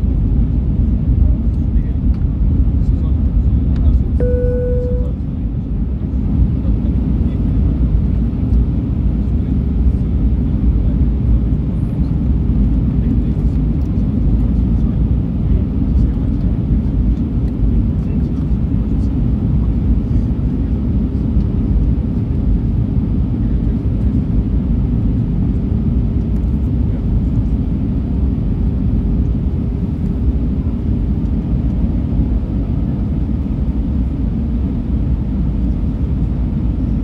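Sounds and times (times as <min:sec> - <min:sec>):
airliner engine and airflow roar: 0:00.0 - 0:37.0
thin steady tone: 0:04.2 - 0:05.1.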